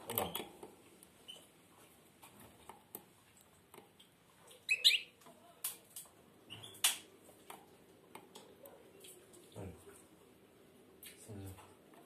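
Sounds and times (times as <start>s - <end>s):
bird chirping: 4.5s - 5.2s, 6.5s - 6.9s.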